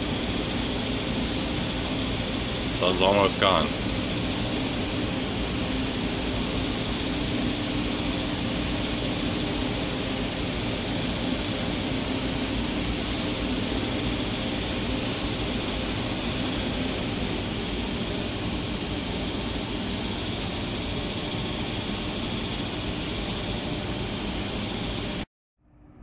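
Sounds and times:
ship machinery drone: 0.0s - 26.0s.

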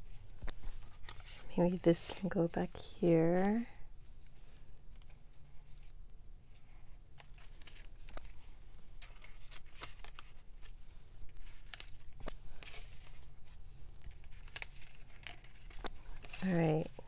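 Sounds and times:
paper rustling against plastic: 7.2s - 17.0s.

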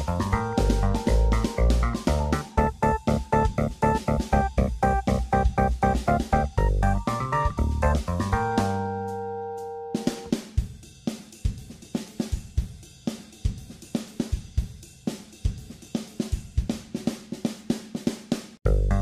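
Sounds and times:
band playing: 0.0s - 10.4s
drum kit playing steady beat: 0.0s - 19.0s.

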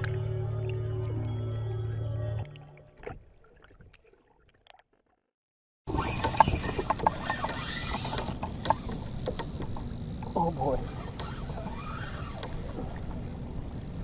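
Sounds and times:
fishing reel drag clicking: 5.9s - 14.0s.

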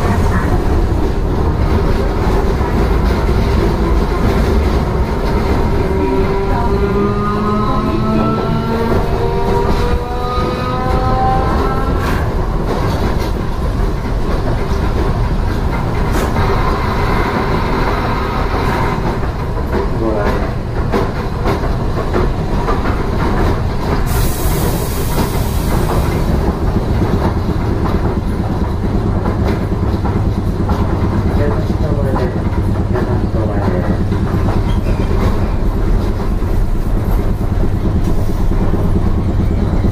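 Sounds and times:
wheels rumbling on rail: 0.0s - 39.9s
air hiss: 24.0s - 26.2s.

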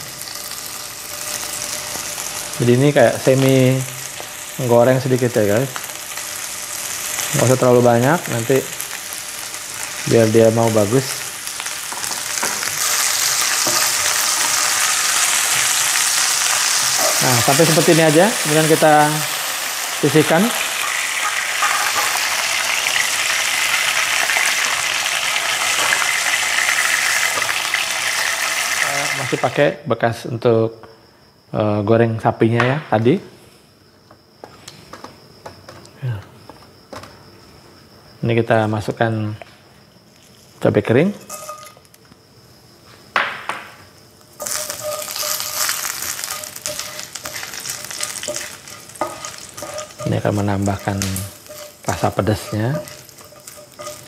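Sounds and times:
meat sizzling in oil: 0.0s - 29.6s, 44.2s - 54.0s
spatula scraping and clicking: 41.2s - 41.8s, 44.4s - 54.0s.

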